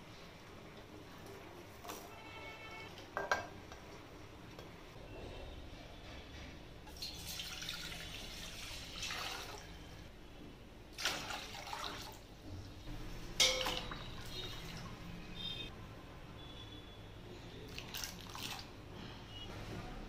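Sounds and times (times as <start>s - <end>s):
water splashing into metal pot: 6.9s - 9.8s, 10.9s - 12.2s, 13.3s - 15.0s.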